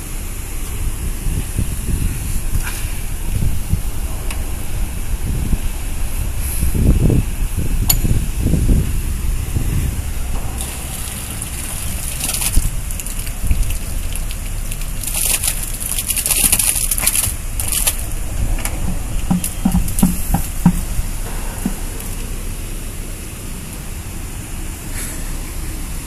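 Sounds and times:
steady low rumble: 0.0 - 26.0
muddy water splattering on ground: 10.0 - 23.9.

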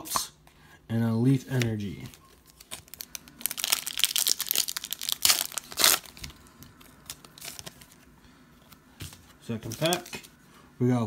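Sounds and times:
cards rustling: 1.5 - 10.4
wrapper tearing and crackling: 2.5 - 7.9.

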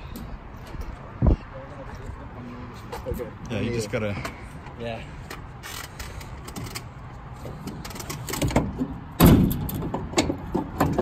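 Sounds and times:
metal roof rack clunking: 7.5 - 11.0.

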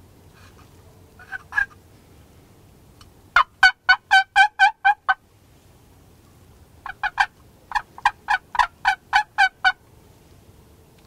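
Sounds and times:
turkey yelps: 1.2 - 1.8, 3.4 - 5.2, 6.8 - 9.8.

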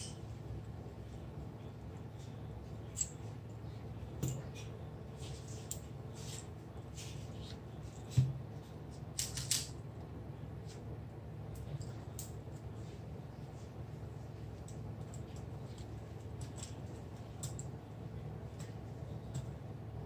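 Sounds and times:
steady low hum: 0.0 - 20.0
small tools clicking and tapping: 2.9 - 3.2, 14.6 - 17.7.

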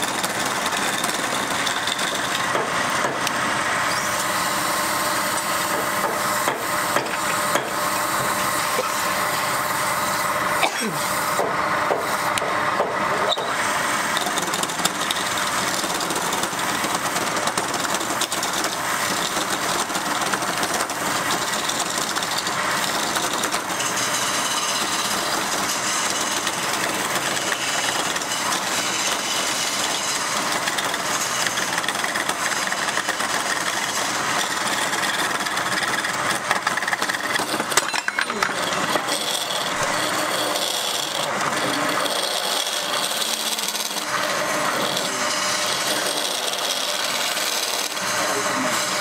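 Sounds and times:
fibre rubbing spinning wood: 0.0 - 49.0
wood lathe humming: 0.0 - 49.0
scraper against turning wood: 13.1 - 49.0.

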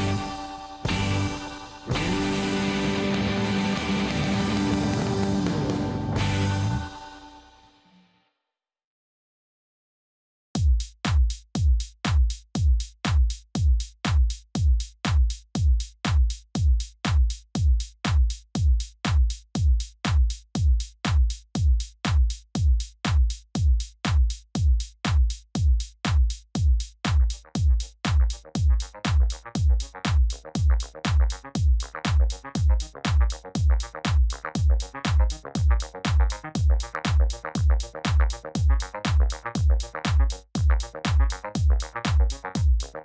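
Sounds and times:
kick drum beat: 0.0 - 7.0, 10.6 - 43.0
synth parts: 0.0 - 7.9.

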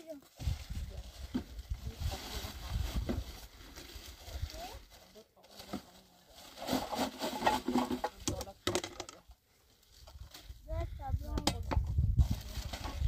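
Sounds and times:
plastic sacks rustling: 0.0 - 8.2, 12.1 - 13.0.

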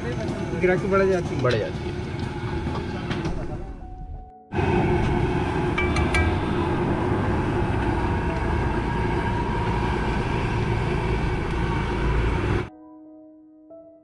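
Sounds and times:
street traffic rumble: 0.0 - 12.7
faint piano music: 12.7 - 14.0.

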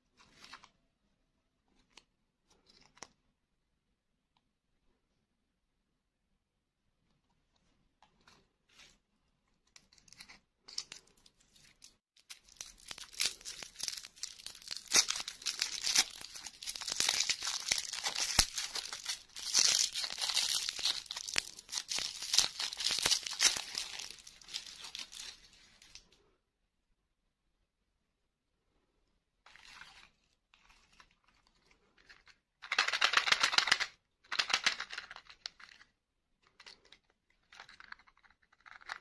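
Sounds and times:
plastic wrapper crinkling: 10.1 - 26.1.

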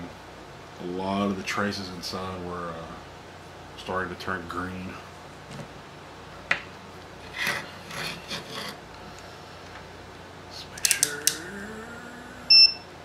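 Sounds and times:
circuit board scraping on wood: 7.2 - 8.8
sharp clicks: 10.8 - 11.4.

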